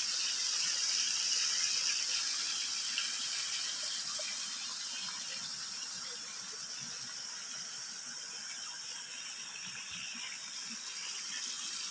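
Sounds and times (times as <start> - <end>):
water flowing over stone: 0.0 - 11.9
water splashing from pipes: 0.0 - 11.9.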